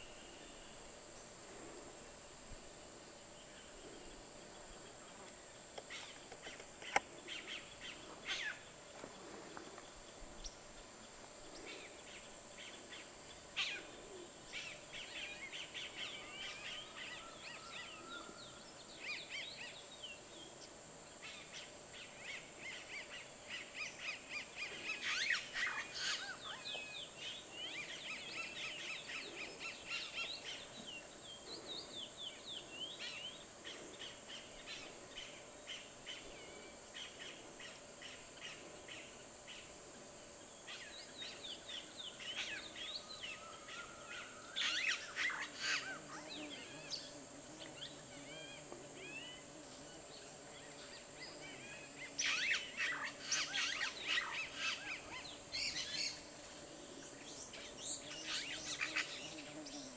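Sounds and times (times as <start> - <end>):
steady high-pitched whine: 0.0 - 59.9
birds chirping and calling: 22.1 - 38.7, 40.8 - 49.8, 50.6 - 59.9.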